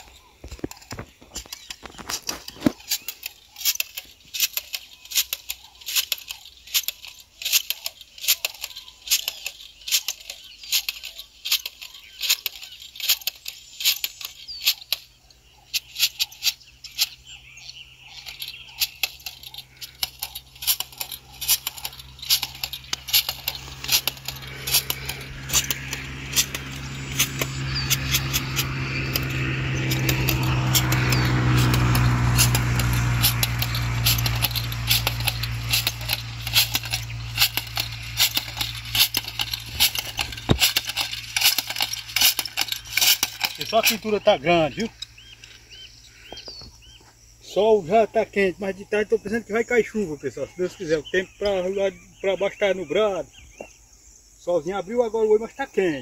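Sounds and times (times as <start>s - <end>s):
engine hum: 0.0s - 53.7s
footsteps on dry soil: 16.2s - 45.2s.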